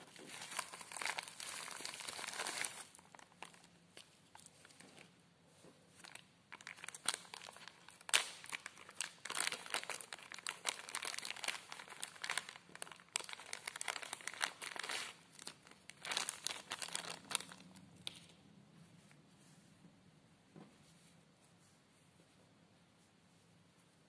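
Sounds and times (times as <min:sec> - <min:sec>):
plastic bag crinkling: 0:00.0 - 0:05.1, 0:05.9 - 0:18.3.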